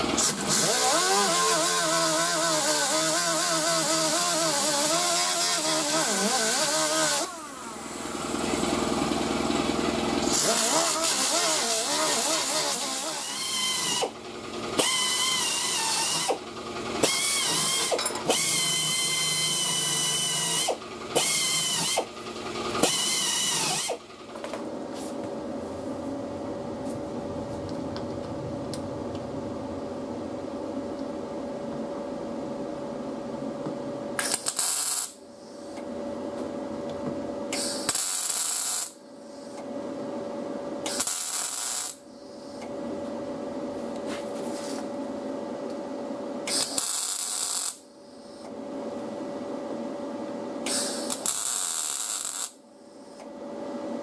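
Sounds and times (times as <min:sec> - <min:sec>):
steady hum: 0:00.0 - 0:54.0
crackling welding bursts: 0:00.2 - 0:07.4, 0:10.2 - 0:14.2, 0:34.2 - 0:35.2, 0:37.6 - 0:39.0, 0:40.9 - 0:42.0, 0:46.5 - 0:47.8, 0:50.7 - 0:52.6.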